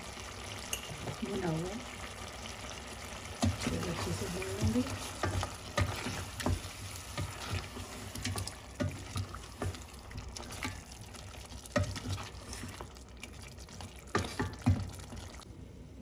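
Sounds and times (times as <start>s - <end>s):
chicken sizzling in oil: 0.0s - 15.4s
wooden spoon knocking on pot: 3.4s - 9.9s.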